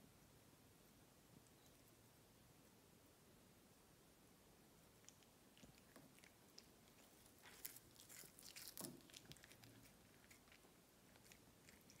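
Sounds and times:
cat chewing grass: 5.0 - 12.0.

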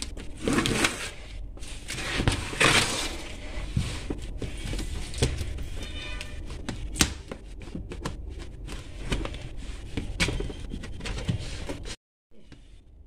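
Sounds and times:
hands rubbing cardboard parcel: 0.0 - 5.8.

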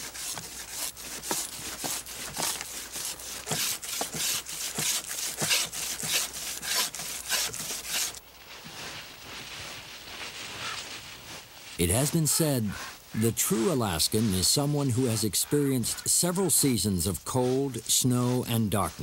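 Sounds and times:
hand scraping strokes: 0.0 - 19.0.

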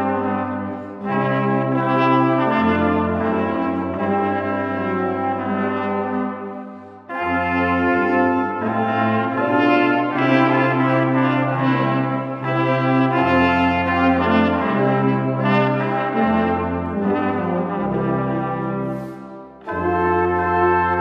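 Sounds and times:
brass ensemble playing sustained chords: 0.0 - 21.0.

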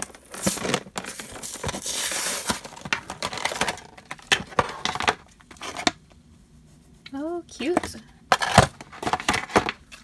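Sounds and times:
plastic crinkling and clicking: 0.0 - 6.0.

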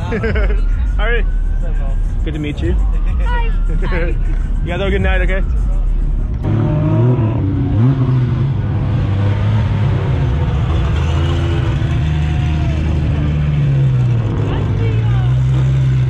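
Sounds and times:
car engine revving: 0.0 - 16.0.

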